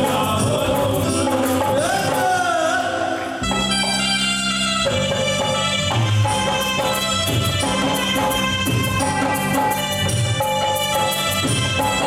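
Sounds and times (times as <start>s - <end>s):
devotional singing: 0.0s - 3.4s.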